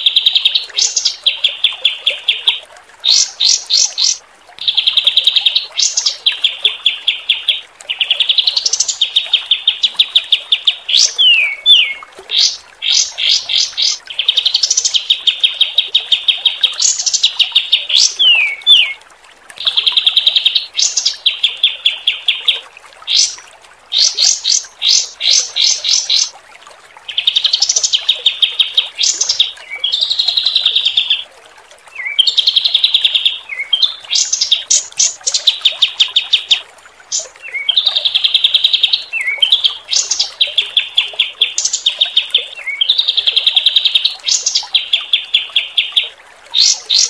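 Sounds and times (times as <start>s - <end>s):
songbird trills and whistles: 0.0s - 19.0s.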